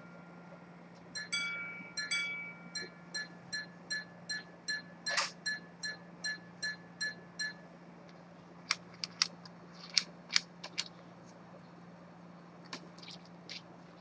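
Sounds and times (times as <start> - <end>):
pocket watch chiming: 1.2 - 7.6.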